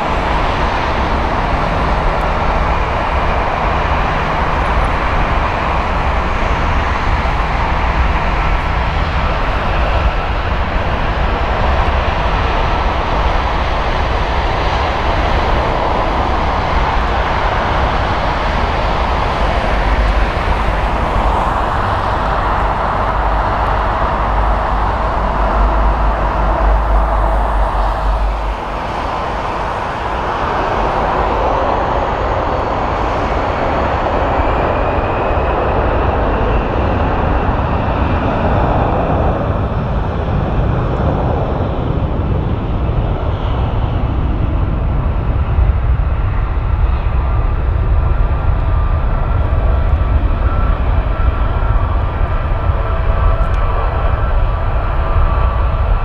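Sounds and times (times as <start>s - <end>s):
deep rumble: 0.0s - 56.0s
jet engines running at high power: 0.0s - 56.0s
faint rising whine: 18.5s - 33.6s.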